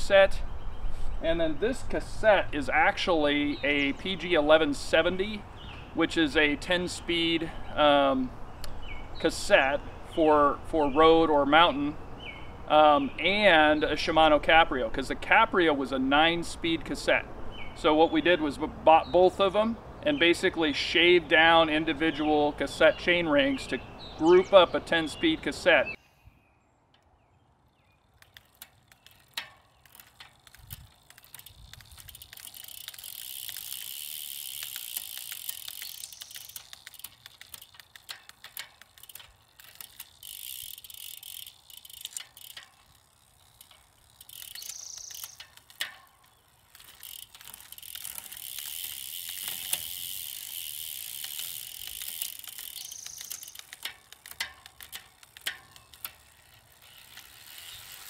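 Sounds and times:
derailleur shifting clicks: 0:28.1 - 0:58.0
bicycle chain hissing: 0:28.2 - 0:58.0.

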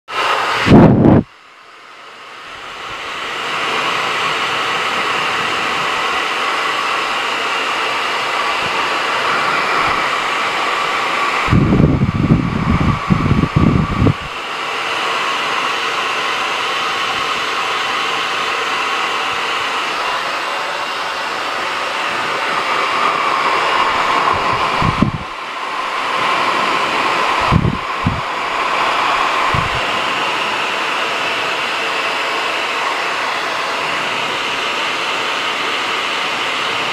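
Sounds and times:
hair dryer whine: 0:00.1 - 0:36.9
low air buffeting: 0:00.2 - 0:01.3, 0:02.5 - 0:14.5, 0:19.7 - 0:34.5.

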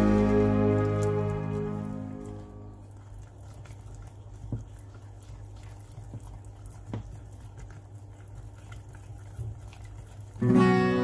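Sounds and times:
low hum: 0:00.0 - 0:03.0.

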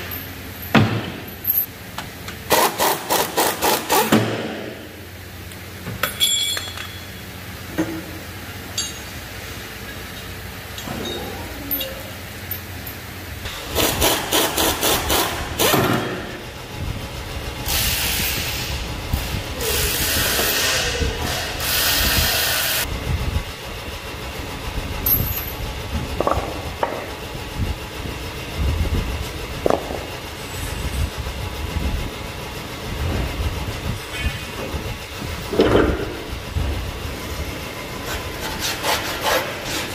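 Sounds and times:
sharp metal clanks: 0:06.0 - 0:07.2, 0:08.7 - 0:09.2.

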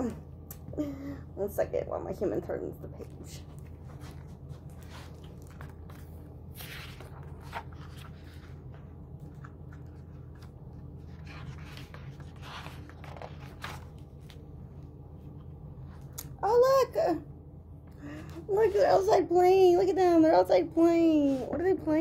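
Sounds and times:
low steady hum: 0:00.0 - 0:22.0
book pages rustling: 0:03.0 - 0:16.4.

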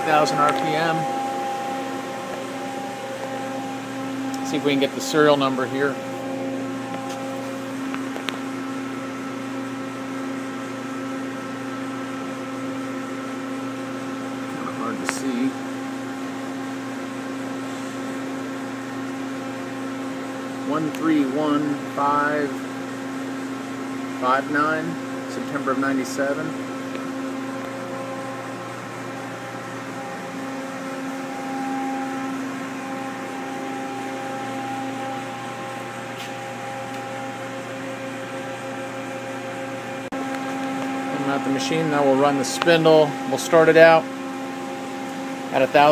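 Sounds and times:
machine electrical and fan hum: 0:00.0 - 0:45.9.

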